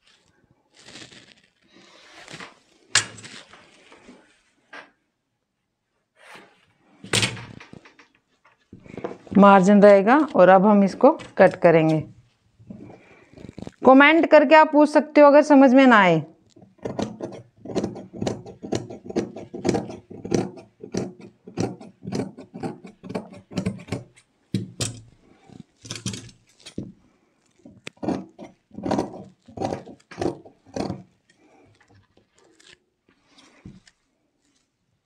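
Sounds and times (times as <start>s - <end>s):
shears cutting fabric: 16.6s - 24.2s.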